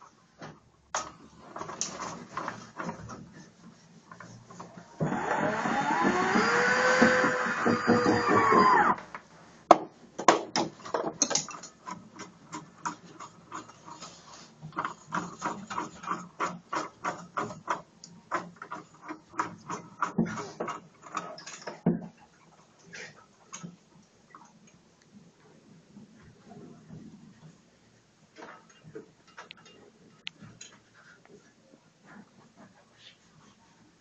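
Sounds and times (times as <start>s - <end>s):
venetian blind clicking and rattling: 10.7s - 21.9s.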